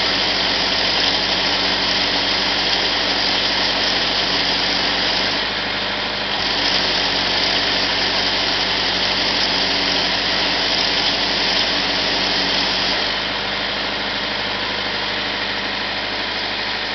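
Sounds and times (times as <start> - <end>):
engine running: 0.0 - 16.9.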